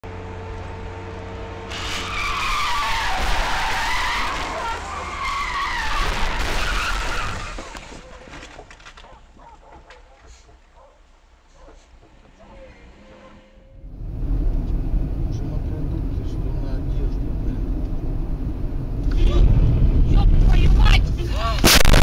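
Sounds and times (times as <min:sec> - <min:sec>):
car engine and road hum: 0:00.0 - 0:09.4, 0:10.7 - 0:22.0
tyre squeal of skidding: 0:01.7 - 0:08.5.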